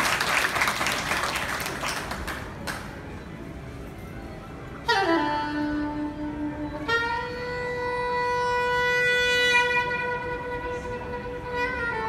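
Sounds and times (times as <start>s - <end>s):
soprano saxophone melody: 4.8s - 12.0s.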